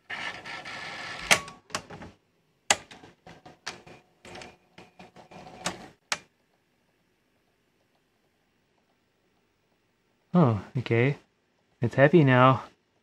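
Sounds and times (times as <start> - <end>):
mechanical clicks and clunks: 2.7 - 6.3.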